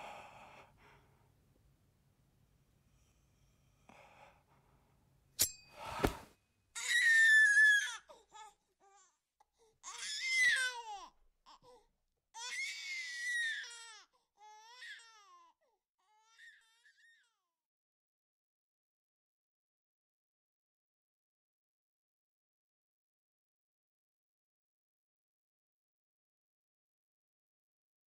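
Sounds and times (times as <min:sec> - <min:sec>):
baby crying: 0:06.8 - 0:09.2, 0:09.8 - 0:17.4.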